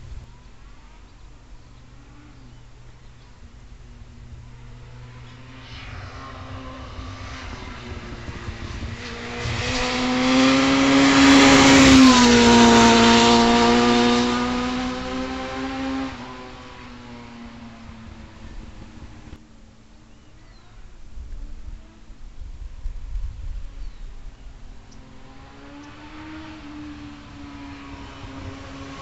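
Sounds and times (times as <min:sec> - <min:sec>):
motorcycle engine passing by: 0:03.9 - 0:19.4, 0:24.7 - 0:29.0.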